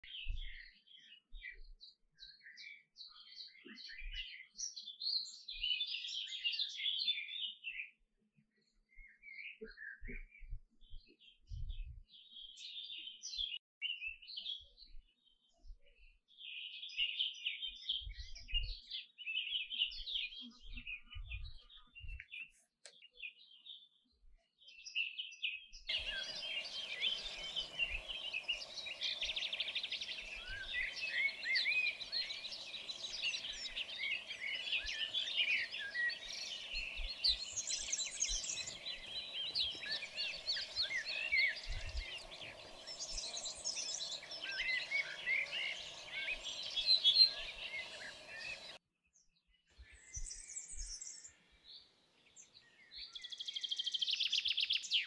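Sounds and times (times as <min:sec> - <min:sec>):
canaries chirping and warbling: 0:25.9 - 0:48.8.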